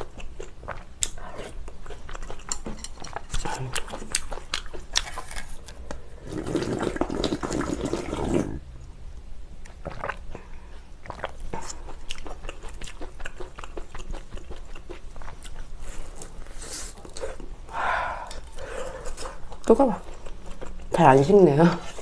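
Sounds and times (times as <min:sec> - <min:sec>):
chewing with wet mouth smacks: 0:00.0 - 0:05.9, 0:09.6 - 0:17.5, 0:18.3 - 0:21.2
person slurping noodles: 0:06.2 - 0:08.6.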